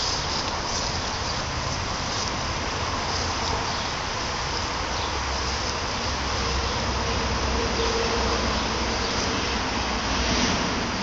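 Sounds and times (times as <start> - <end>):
insects droning: 0.0 - 10.1.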